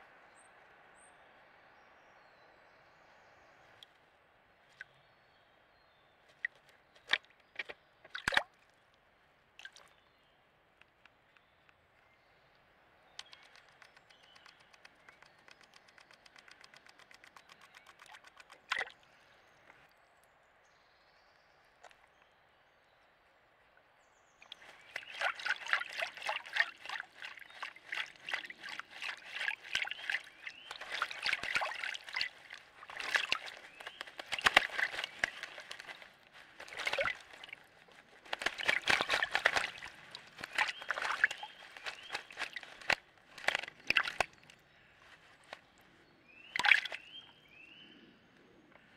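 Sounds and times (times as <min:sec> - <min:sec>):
bird splashing in water: 0:06.3 - 0:08.6, 0:09.6 - 0:10.0, 0:13.2 - 0:19.0, 0:24.4 - 0:44.6, 0:46.4 - 0:47.2.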